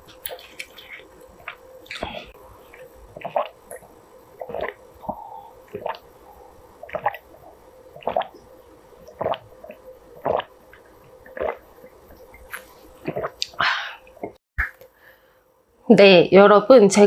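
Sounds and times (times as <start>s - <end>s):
person gulping a drink: 0.1s - 6.1s, 6.8s - 7.4s, 8.0s - 8.4s, 9.1s - 14.4s.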